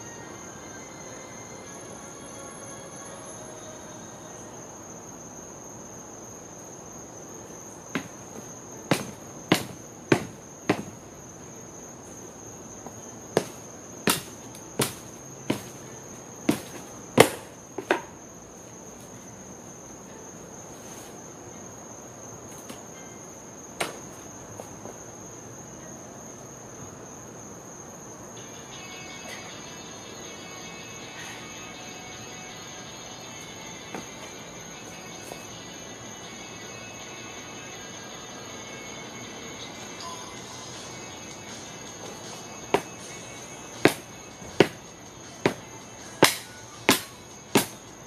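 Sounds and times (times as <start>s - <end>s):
crickets trilling: 0.0s - 48.0s
hammer knocking on wood: 8.9s - 11.0s.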